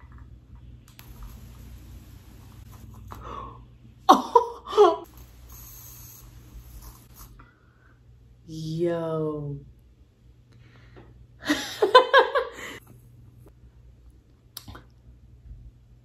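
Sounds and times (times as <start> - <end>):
arc lighter buzzing: 0.9 - 2.9, 5.1 - 7.3.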